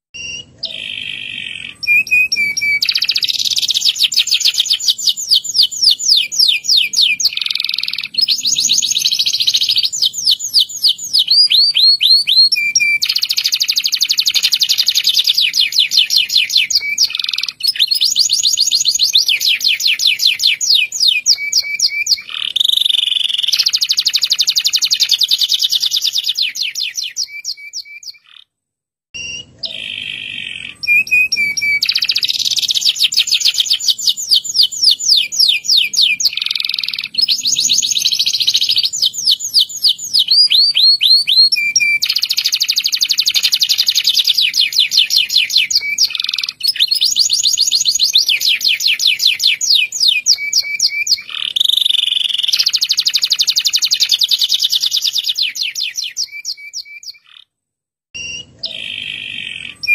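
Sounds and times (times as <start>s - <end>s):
canary singing in rolling trills: 0.1s - 28.5s, 29.2s - 57.5s, 58.2s - 59.9s.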